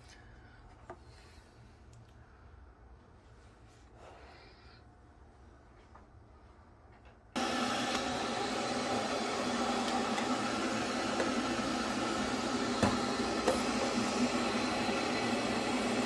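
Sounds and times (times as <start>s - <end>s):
electric kettle heating water: 7.4s - 16.0s.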